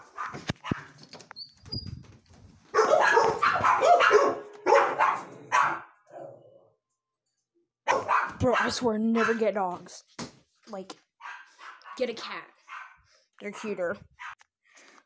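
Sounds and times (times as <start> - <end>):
dog barking: 0.0 - 1.0, 2.7 - 6.0, 7.9 - 9.5, 11.2 - 14.4.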